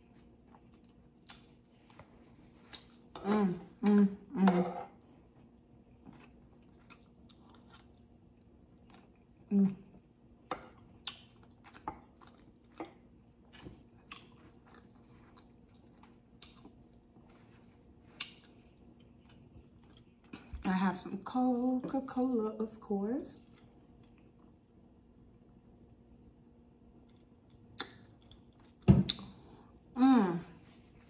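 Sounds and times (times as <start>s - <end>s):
chewing food: 0.0s - 4.0s, 4.9s - 20.8s, 23.4s - 30.0s
wet mouth clicks and smacks: 27.1s - 28.4s.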